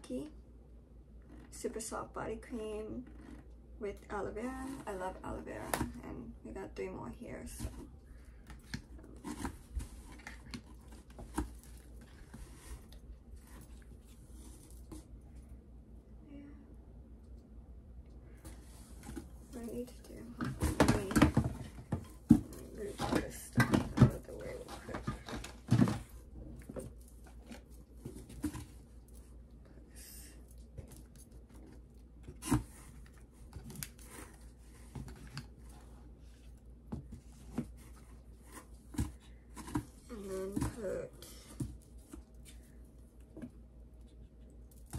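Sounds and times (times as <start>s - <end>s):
rustling: 7.4s - 15.6s.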